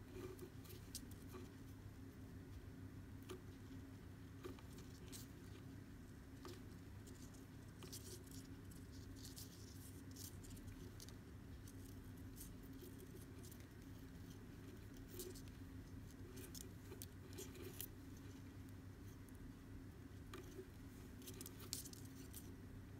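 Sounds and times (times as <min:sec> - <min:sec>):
steady low hum: 0:00.0 - 0:22.9
cord scratching and ticking: 0:03.2 - 0:22.6.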